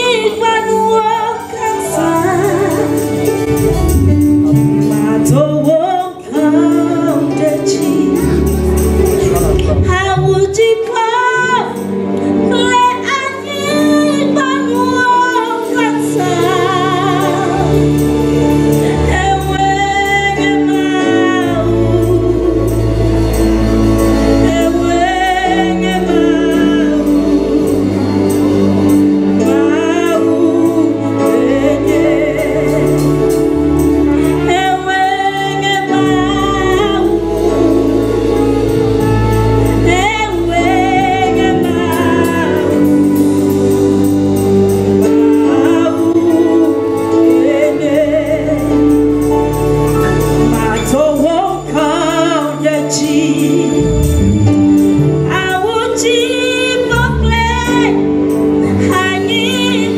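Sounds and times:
sustained backing chords: 0.0s - 59.9s
woman singing slow worship song: 0.0s - 59.9s
bass line: 8.0s - 10.5s, 53.6s - 55.3s.

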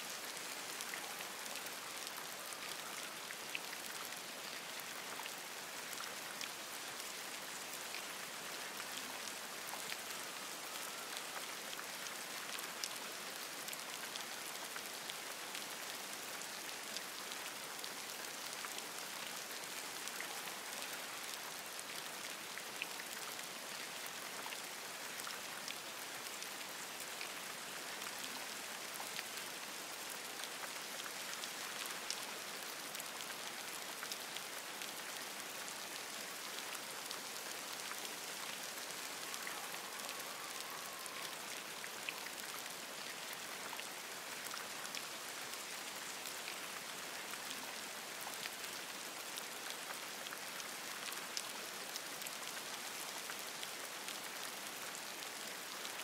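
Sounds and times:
rain pattering on leaves: 0.0s - 56.0s
faint wavering animal call: 39.0s - 41.8s.

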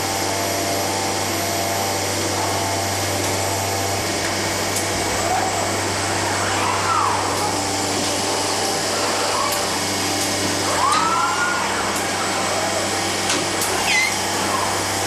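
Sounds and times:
robot motor whine: 4.9s - 15.0s.

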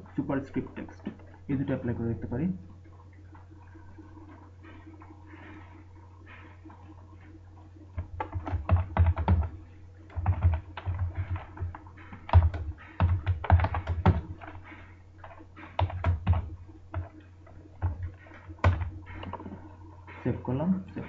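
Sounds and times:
faint low hum: 0.0s - 21.0s
computer keyboard typing: 7.9s - 19.6s.

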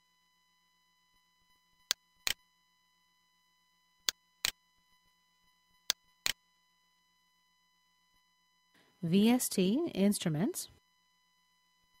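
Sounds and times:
faint high whine: 0.0s - 12.0s.

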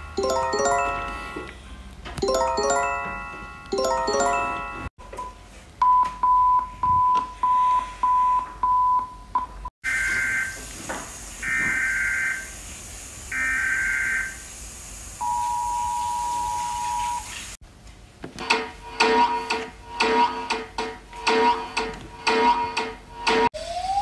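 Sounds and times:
steady hiss: 10.4s - 17.6s.

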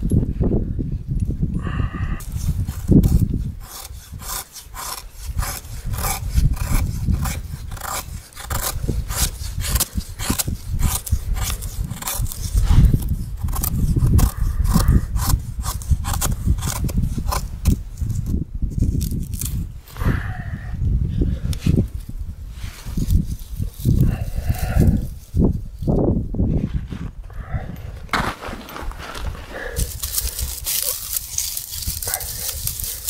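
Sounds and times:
knife scraping wood: 2.2s - 19.6s, 28.1s - 33.0s.

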